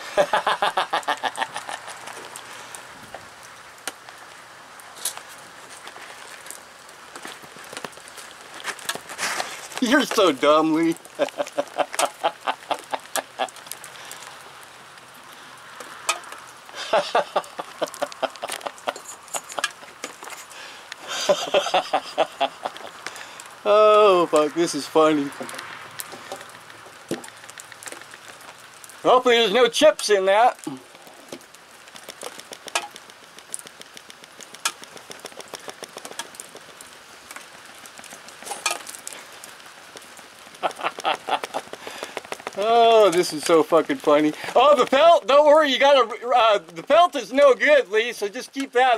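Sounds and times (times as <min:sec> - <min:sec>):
person laughing: 0:00.0 - 0:02.2, 0:11.1 - 0:13.6, 0:16.8 - 0:20.0, 0:21.0 - 0:23.0, 0:40.6 - 0:41.9
light rain pattering: 0:00.0 - 0:48.9
steady hiss: 0:00.0 - 0:48.9.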